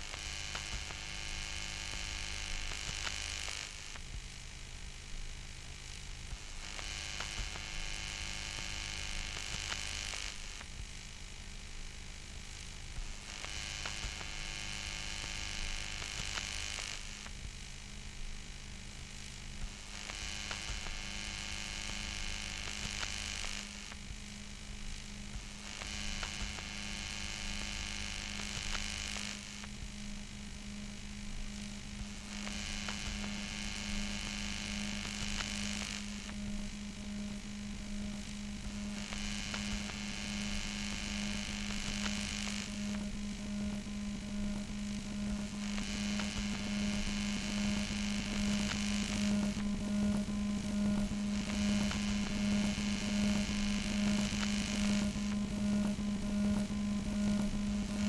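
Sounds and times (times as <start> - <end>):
steady low hum: 17.2 - 58.0.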